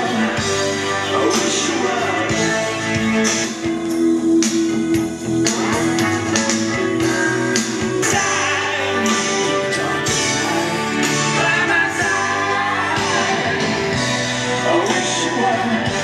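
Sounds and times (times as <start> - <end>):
guitar-led music with beat: 0.0 - 16.0.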